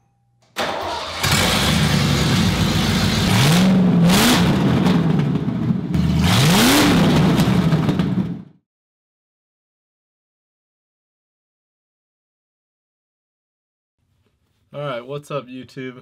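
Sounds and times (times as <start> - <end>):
car engine revving: 0.6 - 8.5.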